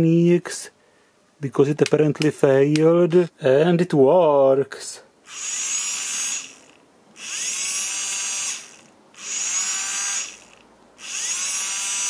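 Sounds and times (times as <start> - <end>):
small motor and gearbox whining: 5.3 - 12.0.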